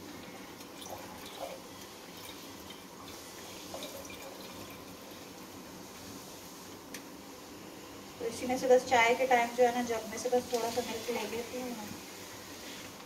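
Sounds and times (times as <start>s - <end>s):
milk trickling into jug: 0.4s - 5.4s.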